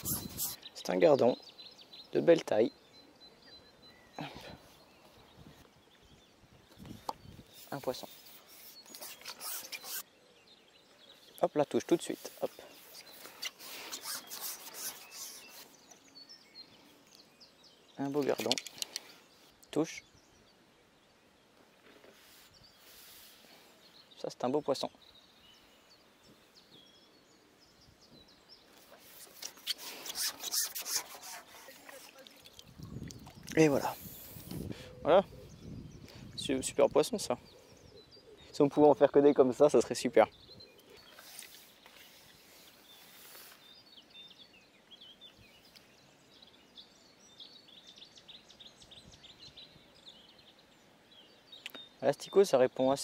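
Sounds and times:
small birds chirping: 0:00.0 - 0:53.0
background hiss: 0:04.3 - 0:32.8, 0:40.1 - 0:53.0.

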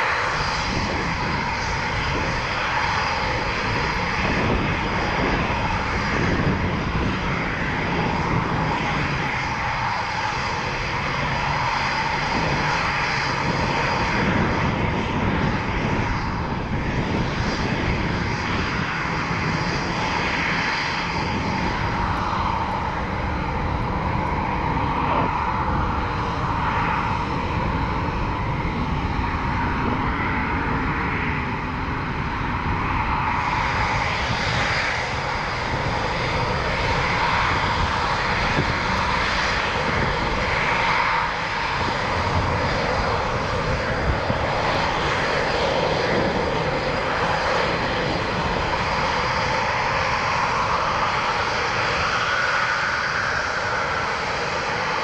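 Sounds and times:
jet engines roaring with whine: 0:00.0 - 0:55.0.

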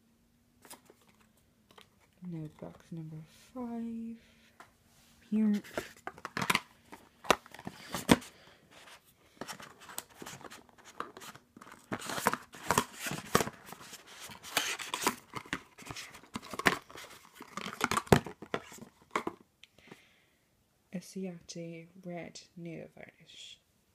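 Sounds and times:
cardboard box being opened: 0:05.5 - 0:19.4.

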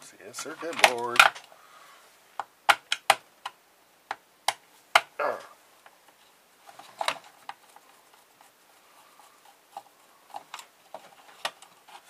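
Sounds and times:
plastic housing clicks and scrapes: 0:09.3 - 0:12.0.

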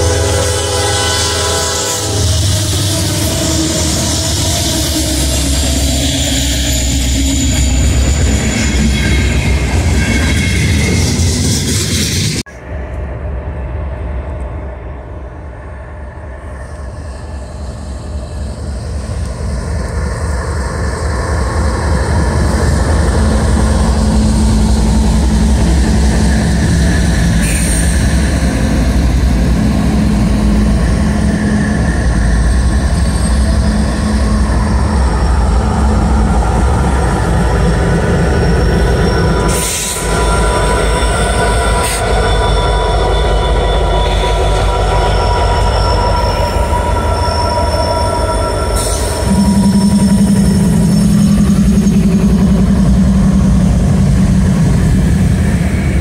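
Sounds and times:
diesel locomotive rumble: 0:00.0 - 0:56.0
thin high whine: 0:23.4 - 0:56.0.

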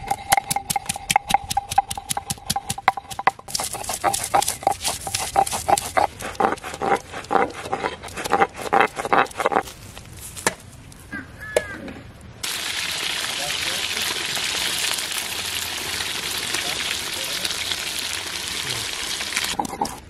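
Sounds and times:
stone roller grinding on stone: 0:00.0 - 0:09.6.

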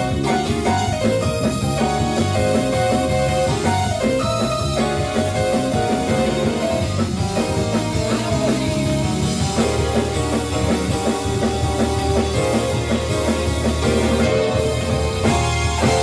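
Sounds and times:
gospel band music: 0:00.0 - 0:16.0
steady drum beat: 0:00.0 - 0:16.0.

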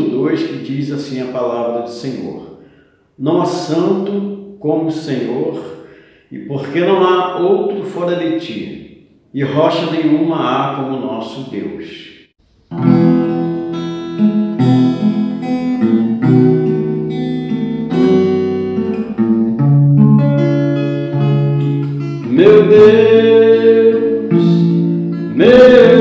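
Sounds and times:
acoustic guitar chords: 0:12.4 - 0:26.0
man singing: 0:22.2 - 0:26.0.

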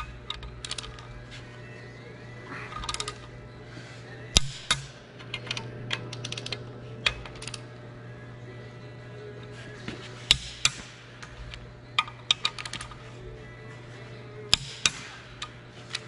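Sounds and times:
low hum: 0:00.0 - 0:16.0
ratchet clicks: 0:12.0 - 0:13.0
torque wrench clicks: 0:12.0 - 0:13.0.

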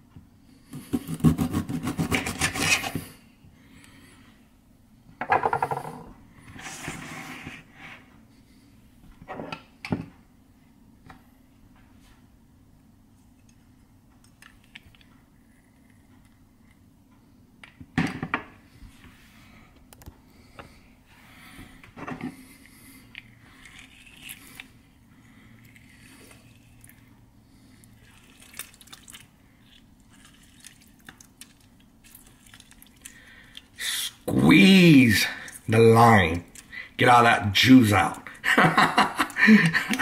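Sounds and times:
lime squeezer squelching: 0:23.0 - 0:24.8, 0:27.9 - 0:34.2
juice dripping into plastic bowl: 0:27.7 - 0:33.8.

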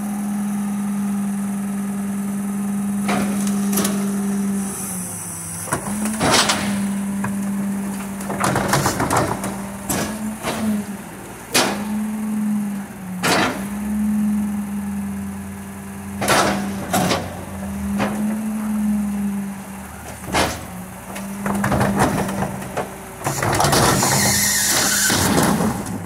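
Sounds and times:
hydraulics whining: 0:00.0 - 0:26.0
garbage cart banging: 0:05.7 - 0:10.9, 0:19.9 - 0:26.0.

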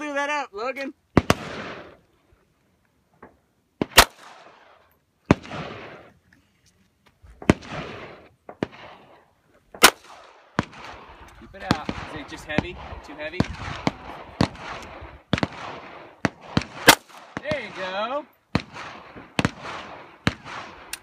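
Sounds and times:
pistol shots with echo: 0:01.2 - 0:02.0, 0:03.8 - 0:06.1, 0:07.4 - 0:09.2, 0:09.8 - 0:21.0.

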